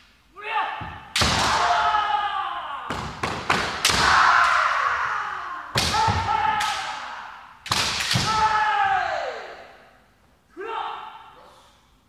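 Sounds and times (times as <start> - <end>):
people shouting: 0.4 - 9.8
bamboo sword strikes cracking: 7.7 - 8.4.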